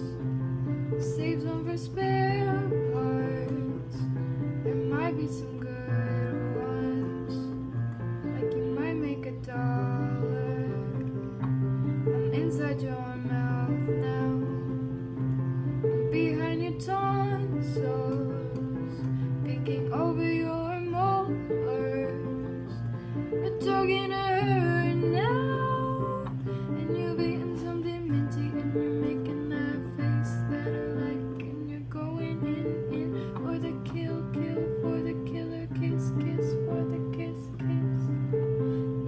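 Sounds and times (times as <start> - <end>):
woman singing: 0.0 - 15.1, 15.7 - 39.0.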